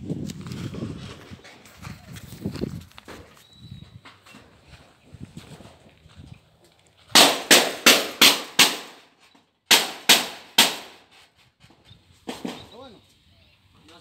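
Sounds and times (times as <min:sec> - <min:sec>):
loud sharp bangs: 0:07.1 - 0:09.1, 0:09.7 - 0:11.1.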